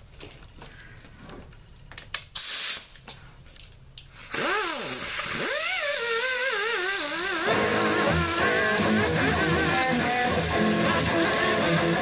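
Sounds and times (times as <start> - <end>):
steady hiss: 2.3 - 3.4
pneumatic grinder air hiss: 2.4 - 2.9
electric guitar rock music: 7.5 - 12.0.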